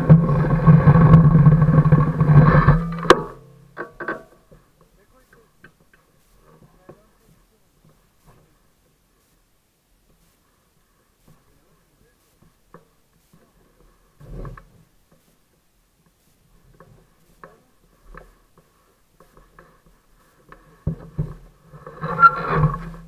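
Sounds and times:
clicks and rustles of handling: 0:11.2 - 0:23.0.

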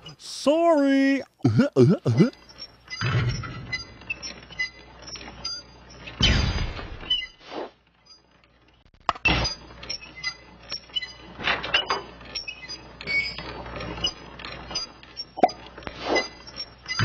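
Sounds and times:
mechanical clanking and clinking: 0:08.3 - 0:17.0.

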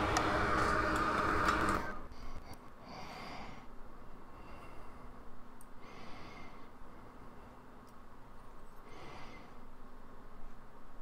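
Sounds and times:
hot air station blowing: 0:00.0 - 0:07.7
soft breaths: 0:02.0 - 0:09.9.

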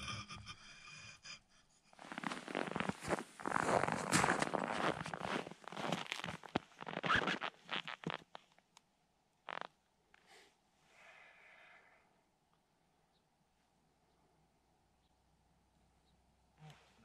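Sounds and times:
boots crunching on snow: 0:02.1 - 0:08.2.

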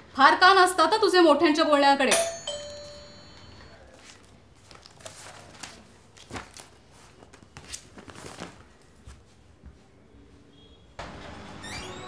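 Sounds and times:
soft taps and rustles: 0:04.0 - 0:10.4
bare footsteps on tiled floor: 0:06.4 - 0:10.4.

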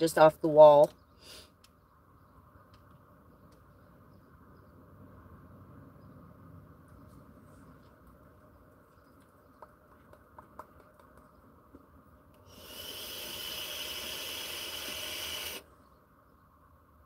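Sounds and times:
vape hissing: 0:12.5 - 0:15.7.

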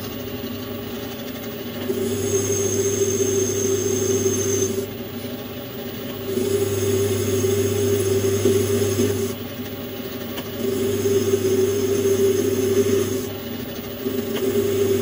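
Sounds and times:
metal lathe cutting metal: 0:01.8 - 0:05.0, 0:06.2 - 0:09.4, 0:10.6 - 0:15.0.

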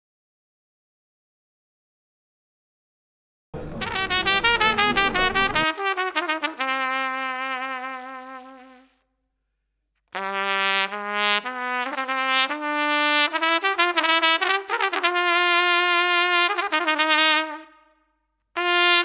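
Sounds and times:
trumpet melody: 0:03.6 - 0:09.0, 0:10.2 - 0:17.8, 0:18.6 - 0:19.0.

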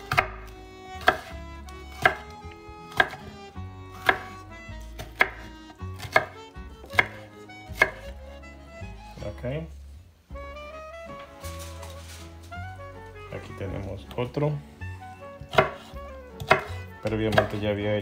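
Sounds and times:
faint background music: 0:00.0 - 0:18.0.

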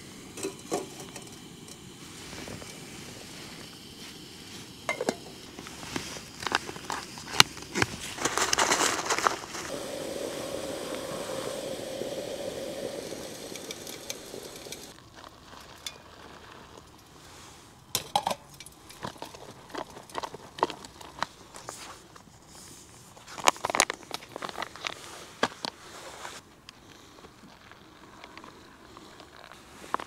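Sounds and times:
gas stove burner hissing: 0:00.0 - 0:07.8, 0:09.4 - 0:15.0
handling clicks and rustles: 0:00.4 - 0:09.7
spoon scraping in foil pouch: 0:05.4 - 0:09.7.

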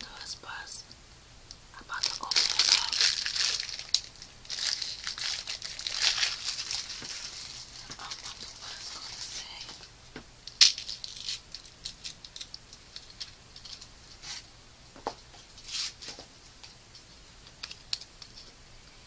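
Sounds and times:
plastic wrapper crinkling: 0:01.9 - 0:09.4, 0:10.5 - 0:14.4.

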